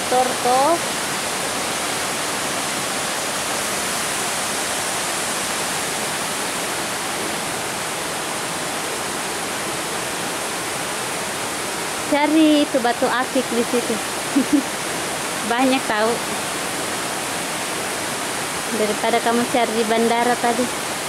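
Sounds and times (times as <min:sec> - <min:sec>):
water rushing from waterfall: 0:00.0 - 0:21.0.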